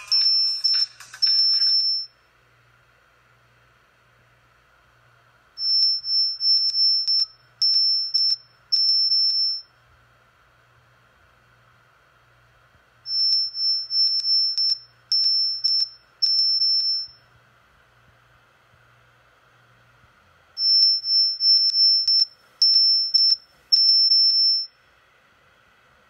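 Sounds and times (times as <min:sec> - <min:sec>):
high-pitched pulsed tone: 0:00.0 - 0:02.1.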